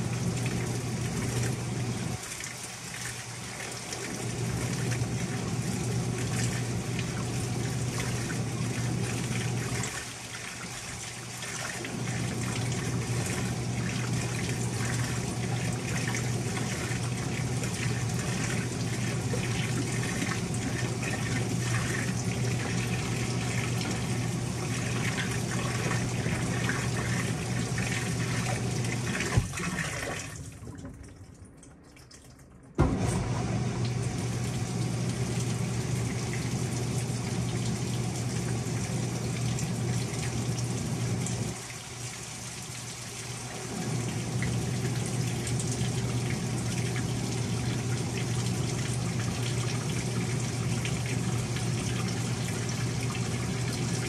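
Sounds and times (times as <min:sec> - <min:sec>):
water pouring into washing machine: 0:00.0 - 0:54.0
low motor hum: 0:11.9 - 0:29.6, 0:32.5 - 0:41.6
washing machine click: 0:32.8 - 0:34.2.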